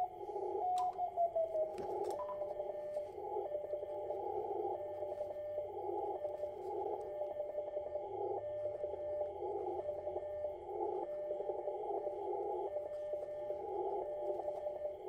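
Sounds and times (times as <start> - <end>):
receiver hiss: 0.0 - 15.0.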